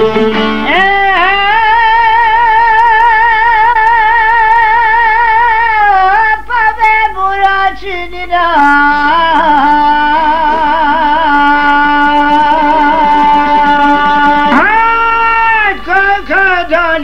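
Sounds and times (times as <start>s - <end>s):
folk singing with vibrato: 0.0s - 17.0s.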